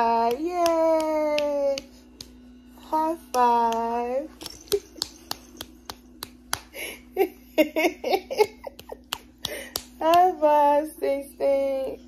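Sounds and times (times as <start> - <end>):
faint steady hum: 0.0 - 12.0
hands slapping together: 0.1 - 2.4, 3.2 - 6.9, 8.6 - 10.5.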